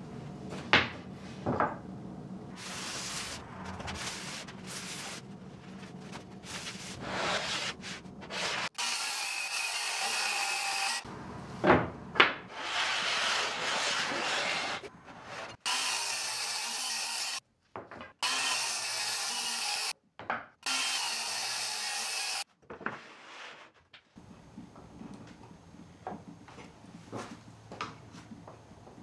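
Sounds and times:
wood scraping: 0:02.6 - 0:08.7.

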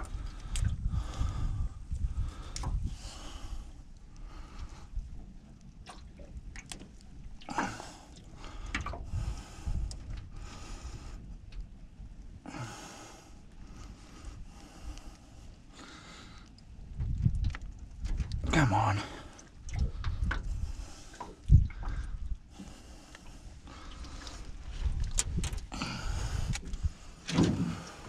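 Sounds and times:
man breathing hard: 0:00.2 - 0:04.9, 0:12.4 - 0:16.6, 0:25.7 - 0:28.0.

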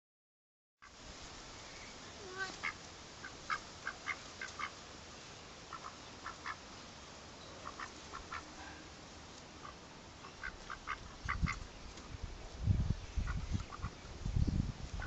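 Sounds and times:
duck quacking softly: 0:02.2 - 0:04.8, 0:05.7 - 0:06.6, 0:07.6 - 0:08.8, 0:09.6 - 0:11.6, 0:13.2 - 0:14.0.

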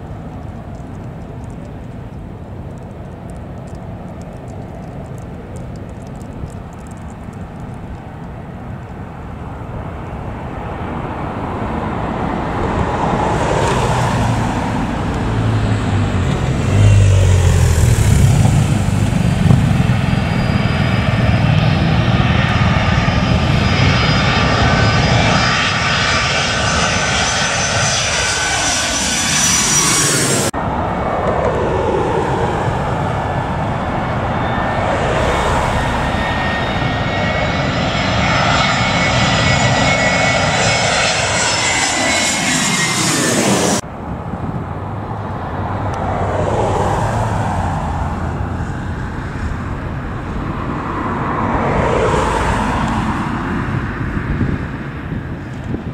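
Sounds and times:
jet airliner passing overhead: 0:00.0 - 0:55.9.

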